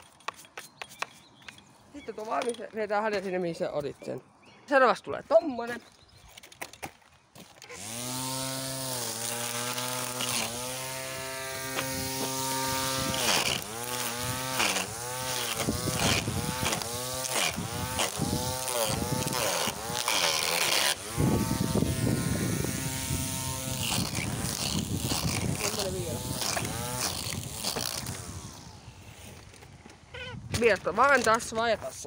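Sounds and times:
cut grass crackling: 0:07.5 - 0:29.5
electric string trimmer whining: 0:07.6 - 0:30.1.

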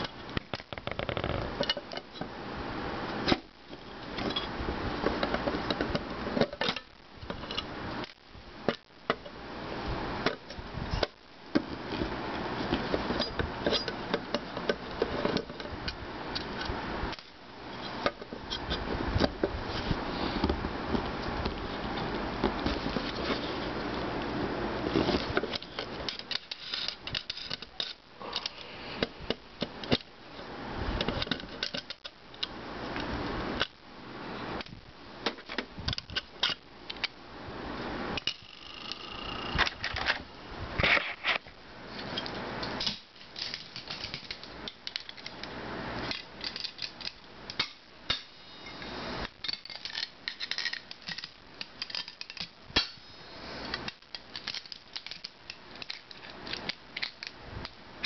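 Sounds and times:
metal parts scraping: 0:24.9 - 0:28.8, 0:46.0 - 0:53.1, 0:53.7 - 0:57.4.

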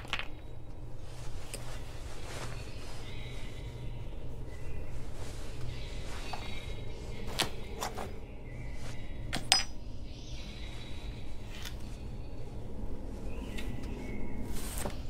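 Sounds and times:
steady low hum: 0:00.0 - 0:15.0
satin fabric rustling: 0:00.5 - 0:09.4.

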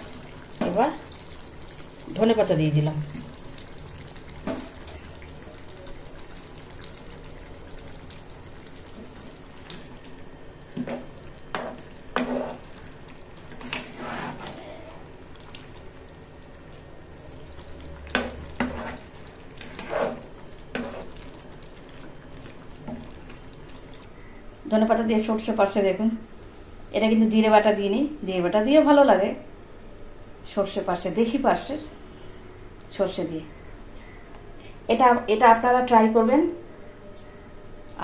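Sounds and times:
curry simmering in a pan: 0:00.0 - 0:24.1
spatula stirring: 0:10.6 - 0:16.0, 0:17.6 - 0:24.0.

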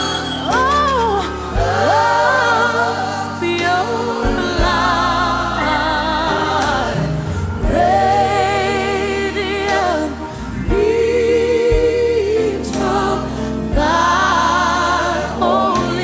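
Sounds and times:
low steady accompaniment: 0:00.0 - 0:16.0.

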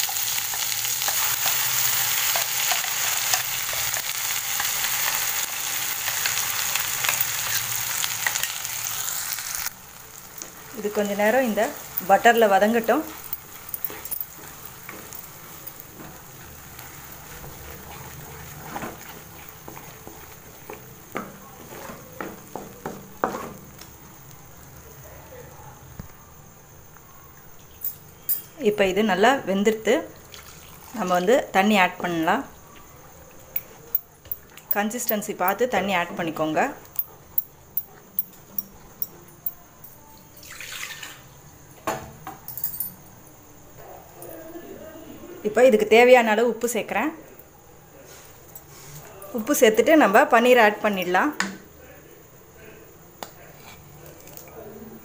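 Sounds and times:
paste sizzling in butter: 0:00.0 - 0:21.9
spatula stirring in a pan: 0:00.0 - 0:23.6
spatula scraping pan: 0:16.0 - 0:21.0
spatula knocking pan: 0:18.6 - 0:23.6
water poured splash: 0:30.3 - 0:31.0, 0:40.4 - 0:41.2.

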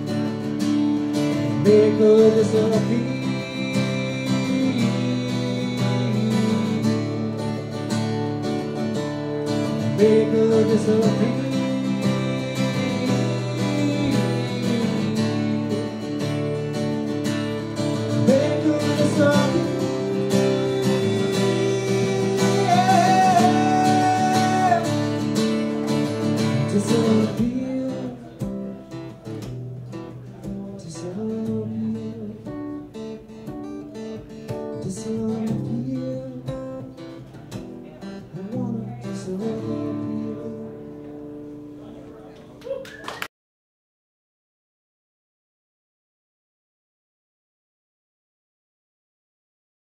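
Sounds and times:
acoustic guitar strumming: 0:00.0 - 0:42.0
man singing wordless notes: 0:01.3 - 0:07.4, 0:09.7 - 0:16.2, 0:17.7 - 0:28.9, 0:30.3 - 0:32.8, 0:34.7 - 0:37.3, 0:37.9 - 0:41.0.

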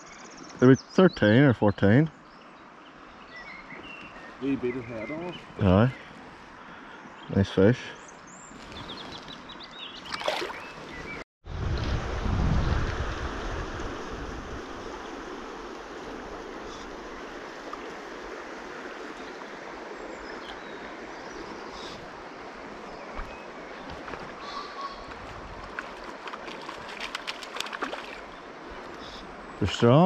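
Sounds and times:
shallow river flowing over stones: 0:08.5 - 0:11.1, 0:13.2 - 0:24.4, 0:25.0 - 0:30.0.

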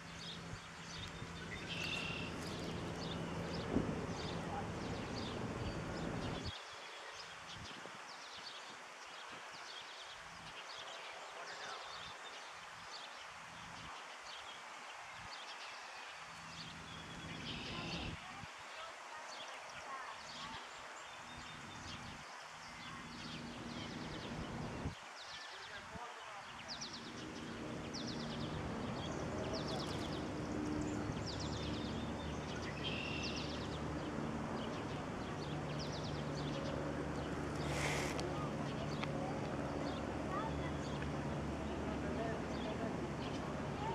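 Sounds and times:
outdoor background noise: 0:00.0 - 0:43.9
small birds chirping: 0:00.0 - 0:43.9
steady background hiss: 0:00.0 - 0:43.9
brief rush of noise: 0:37.6 - 0:38.2.

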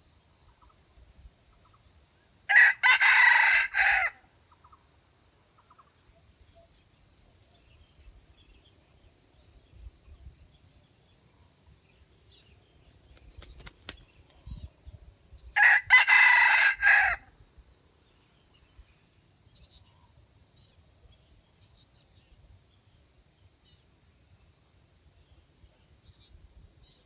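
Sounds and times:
rooster crowing: 0:02.5 - 0:04.3, 0:15.6 - 0:17.3.

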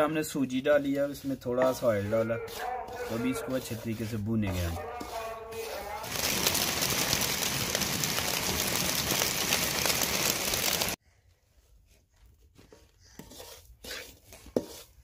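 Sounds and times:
wooden spoon stirring semolina: 0:00.0 - 0:15.0
heavy rain falling: 0:06.0 - 0:11.0.

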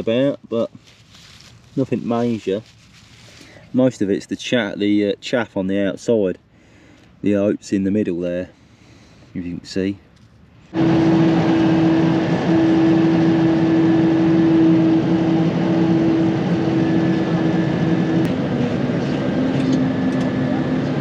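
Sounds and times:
steady hum: 0:10.4 - 0:21.0
combine harvester running: 0:10.7 - 0:21.0.

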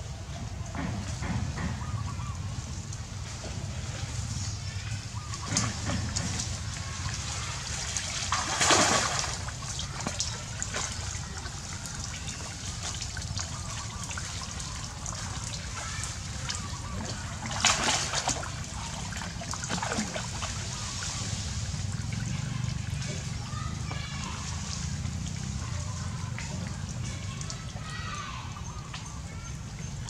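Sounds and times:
water splashing and trickling: 0:00.0 - 0:30.0
loud splashes: 0:05.4 - 0:26.4.

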